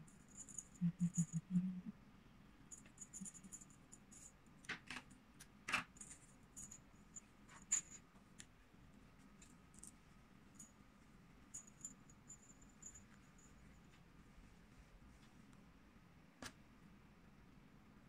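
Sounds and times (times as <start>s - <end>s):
small bell jingling: 0.0s - 1.7s, 2.7s - 4.4s, 6.0s - 8.0s, 11.4s - 14.0s.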